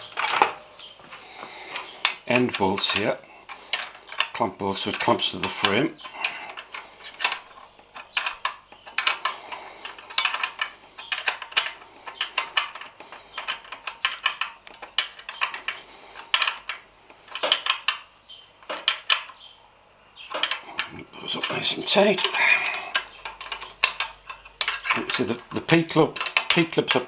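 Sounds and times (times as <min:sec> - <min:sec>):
ratchet clicking: 0:02.0 - 0:19.4.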